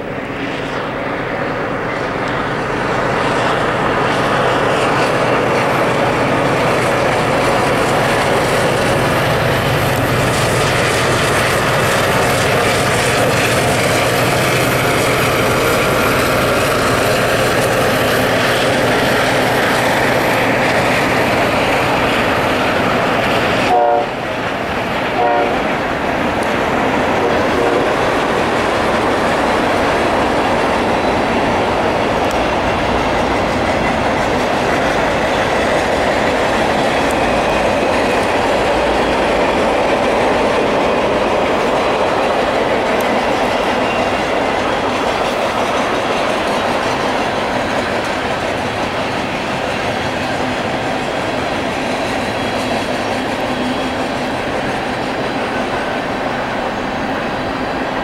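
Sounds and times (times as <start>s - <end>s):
diesel locomotive running: 0.0s - 58.0s
train wheels clattering on rail: 0.0s - 58.0s.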